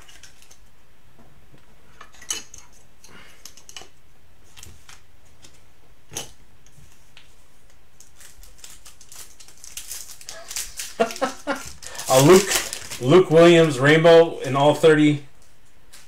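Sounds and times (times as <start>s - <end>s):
cards rustling: 6.8s - 16.0s.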